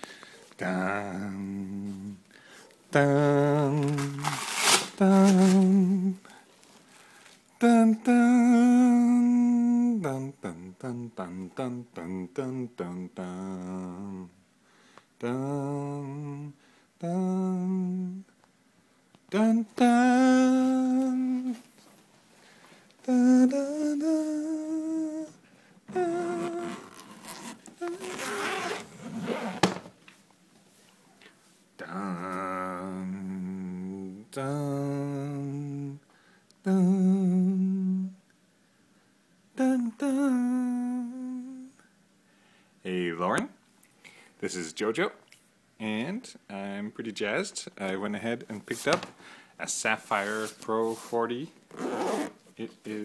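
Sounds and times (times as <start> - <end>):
person humming: 0.6 - 2.2, 7.6 - 14.4, 15.2 - 18.3, 19.3 - 21.6, 23.0 - 29.5, 31.8 - 36.0, 36.6 - 38.2, 39.6 - 41.8
short rustling: 3.6 - 7.4, 49.9 - 53.0
person humming long notes: 23.1 - 28.2, 31.8 - 36.0.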